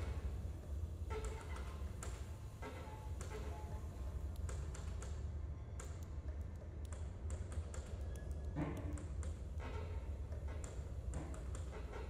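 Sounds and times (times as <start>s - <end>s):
steady low hum: 0.0s - 12.0s
sparse clicks and taps: 4.3s - 5.2s, 5.8s - 9.8s.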